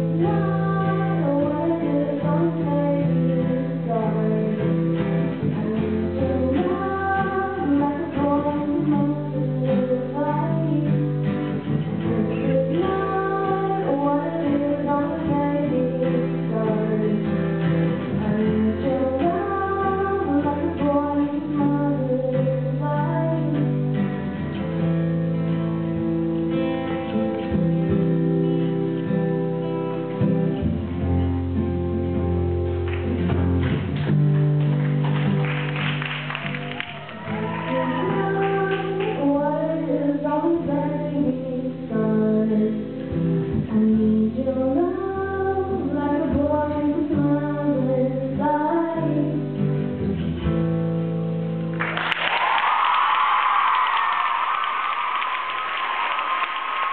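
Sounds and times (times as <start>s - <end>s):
girl singing: 0.0s - 23.8s, 37.3s - 49.6s
acoustic guitars strumming: 0.0s - 51.8s.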